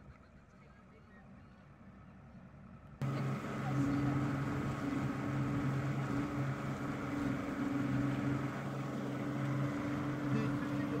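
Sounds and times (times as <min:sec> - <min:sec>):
outboard motor humming: 0:00.0 - 0:11.0
wind: 0:00.0 - 0:11.0
water rushing: 0:03.0 - 0:11.0.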